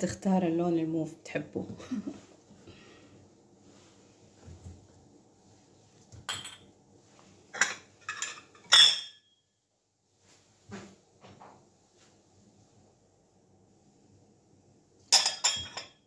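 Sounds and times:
porcelain cups clinking: 6.3 - 6.7, 7.5 - 9.3, 15.1 - 16.0.

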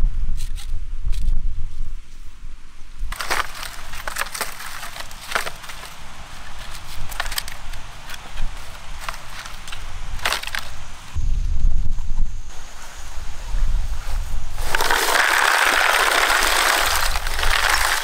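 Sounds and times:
sharp crunches: 3.1 - 10.8, 14.6 - 18.0
dry palm fronds crackling: 3.1 - 10.9, 14.6 - 18.0.

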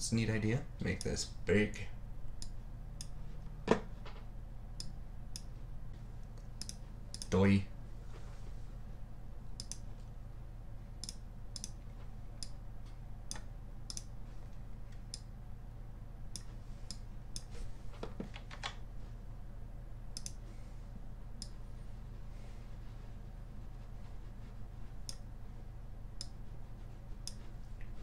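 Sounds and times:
steady low hum: 0.0 - 28.0
computer mouse clicking: 6.2 - 7.4, 9.6 - 9.9, 11.0 - 11.8, 13.3 - 14.1, 20.2 - 20.4, 27.2 - 28.0.

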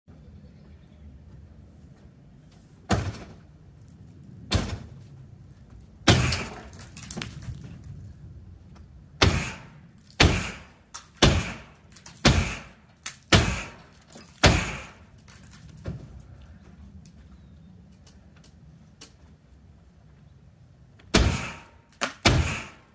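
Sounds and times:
axe striking metal roof: 2.9 - 3.4, 4.5 - 4.9, 6.0 - 7.0, 9.2 - 15.1, 21.1 - 22.9.

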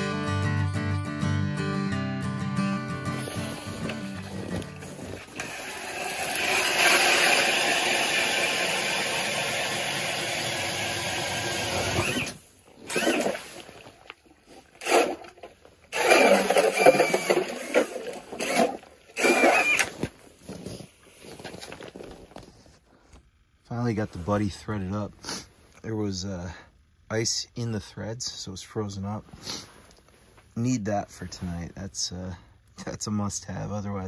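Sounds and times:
cordless drill drilling ice: 3.1 - 13.9, 14.8 - 20.1.

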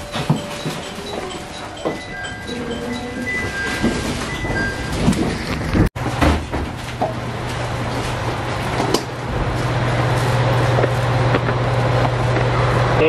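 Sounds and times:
train sliding door opening: 2.9 - 7.0.

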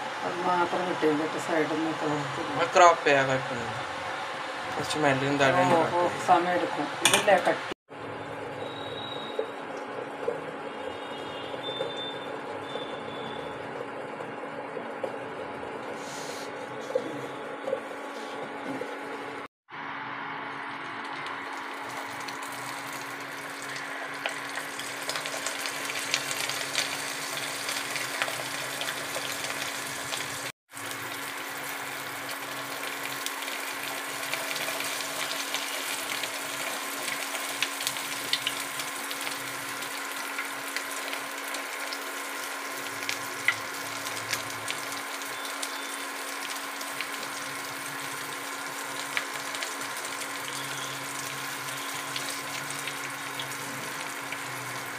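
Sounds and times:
batter sizzling in hot oil: 21.0 - 54.9.

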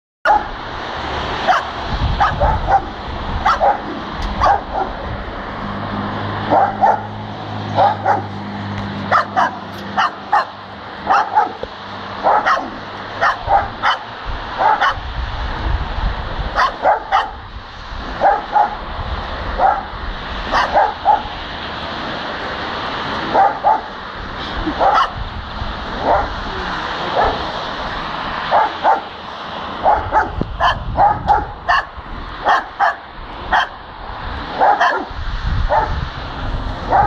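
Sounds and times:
dogs barking: 0.2 - 0.6, 1.4 - 5.1, 6.3 - 15.1, 16.5 - 18.9, 19.5 - 21.5, 23.2 - 24.0, 24.6 - 25.2, 25.9 - 33.8, 34.5 - 36.1.

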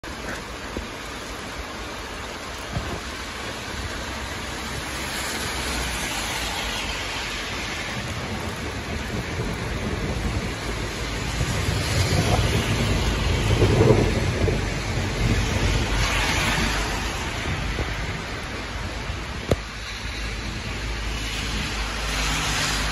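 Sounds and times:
gusting wind: 0.0 - 22.9
heavy rain on wet street: 0.0 - 22.9
deep rumble: 7.2 - 22.0.

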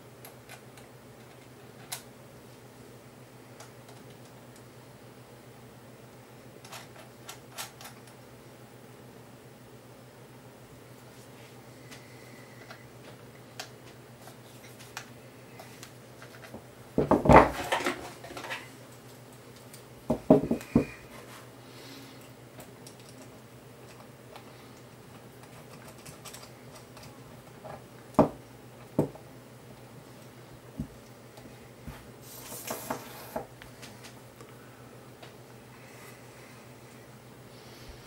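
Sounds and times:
parts clattering: 16.2 - 18.8.

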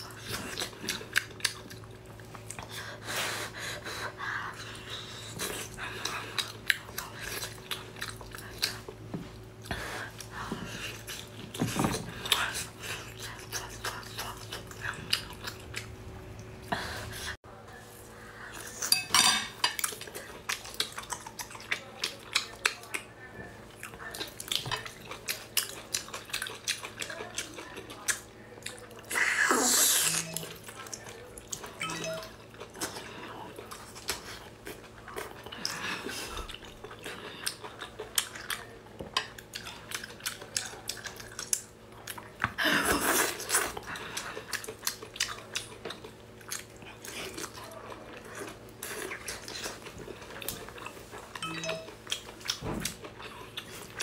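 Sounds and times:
wet sticky eating sounds: 19.8 - 54.0.

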